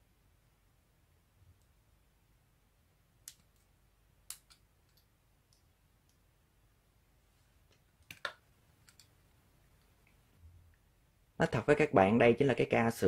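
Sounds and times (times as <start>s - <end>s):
clicks of small parts and screwdriver: 4.3s - 6.2s.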